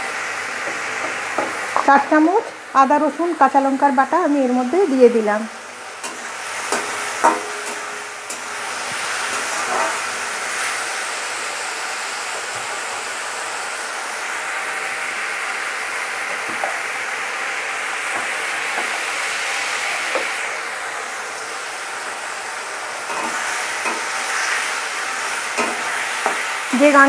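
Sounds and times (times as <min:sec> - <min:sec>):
food sizzling in hot oil: 0:00.0 - 0:27.0
spatula scraping a pan: 0:09.2 - 0:10.8.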